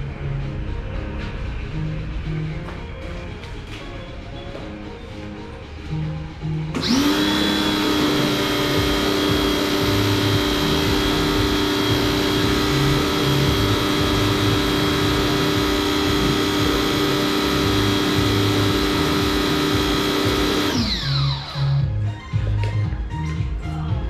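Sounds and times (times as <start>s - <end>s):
vacuum cleaner running: 6.8s - 21.9s.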